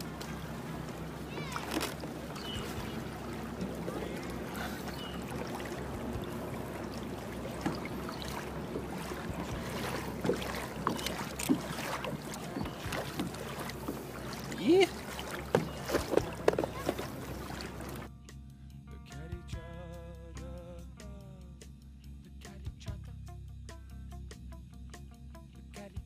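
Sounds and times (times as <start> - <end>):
light knocks against hull: 0.0 - 18.1
small water splashes: 0.0 - 18.1
steady low hum: 0.0 - 18.1.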